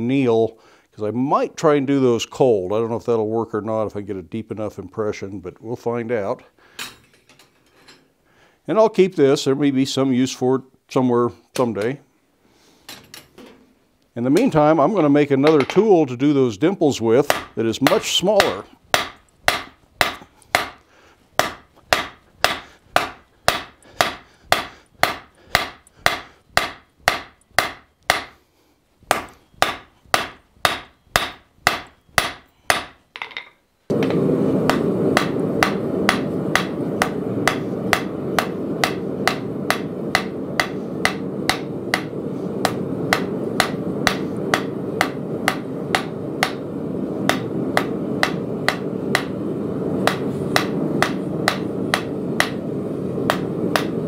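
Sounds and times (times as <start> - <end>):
hammer striking steel on anvil: 17.3 - 20.8, 21.4 - 28.4, 29.1 - 46.7, 47.3 - 49.4, 50.0 - 52.6, 53.2 - 54.0
low rushing noise: 33.9 - 54.0.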